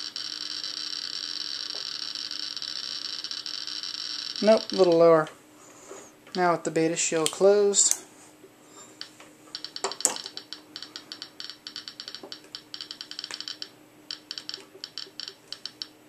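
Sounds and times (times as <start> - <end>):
geiger counter clicking: 0.0 - 5.3, 9.0 - 16.0.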